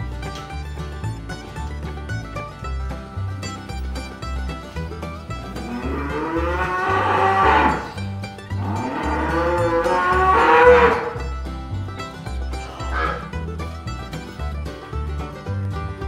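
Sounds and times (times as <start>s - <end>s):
background music with steady beat: 0.0s - 16.0s
calf mooing: 5.6s - 7.9s, 8.6s - 11.2s, 12.6s - 13.4s.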